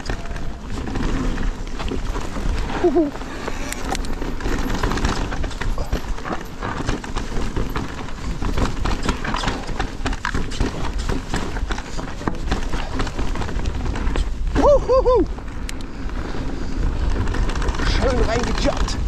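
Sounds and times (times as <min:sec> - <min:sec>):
bike clattering over stones: 0:00.0 - 0:19.0
low wind rumble: 0:00.0 - 0:19.0.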